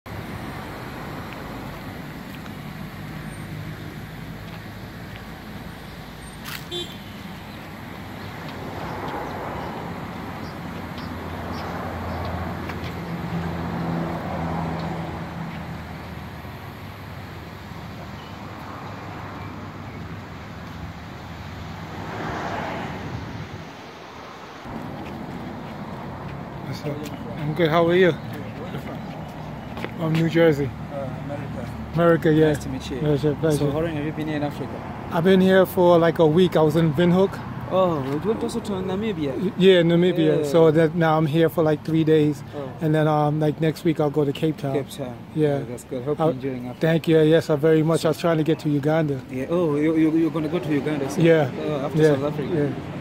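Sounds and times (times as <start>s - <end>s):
vehicles passing rumble: 0.1s - 53.0s.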